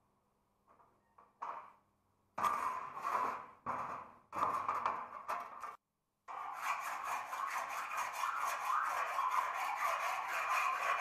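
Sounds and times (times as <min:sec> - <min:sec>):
abrasive tool scraping steel: 0:02.4 - 0:11.0.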